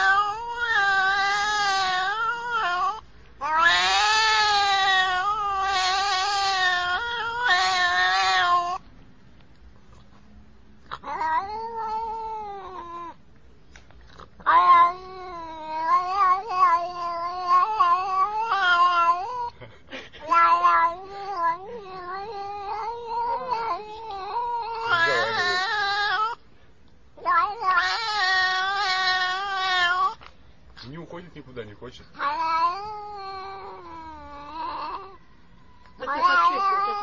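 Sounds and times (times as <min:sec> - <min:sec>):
angry cat yowling: 0:00.0 - 0:08.8, 0:10.9 - 0:13.2, 0:14.2 - 0:19.6, 0:20.2 - 0:26.4, 0:27.2 - 0:30.3, 0:32.1 - 0:37.0.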